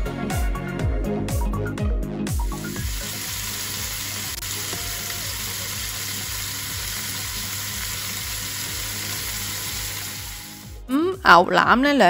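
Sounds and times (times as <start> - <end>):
electronic music with a beat: 0.0 - 2.8
meat sizzling in hot oil: 2.5 - 10.8.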